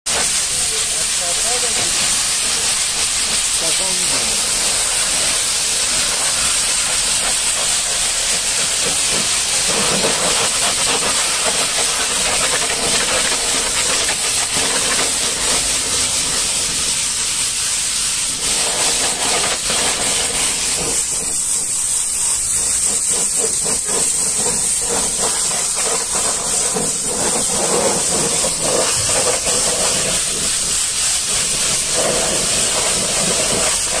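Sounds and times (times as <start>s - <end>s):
pressure washer jet hissing: 0.0s - 34.0s.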